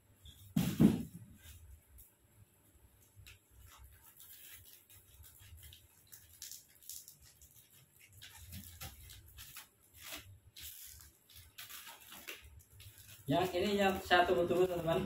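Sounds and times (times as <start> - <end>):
scissors cutting plastic film: 3.2 - 15.0.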